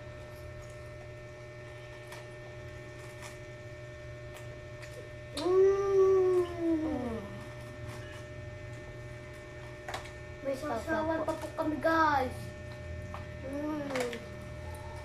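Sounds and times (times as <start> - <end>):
child humming mmm while chewing: 4.8 - 8.3.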